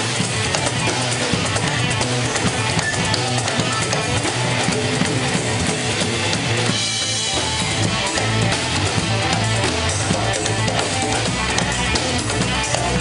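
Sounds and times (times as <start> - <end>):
live band playing: 0.0 - 13.0.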